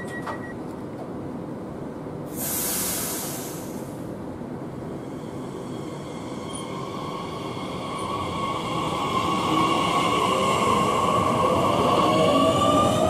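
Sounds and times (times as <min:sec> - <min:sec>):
loud air hiss: 0:02.3 - 0:04.2.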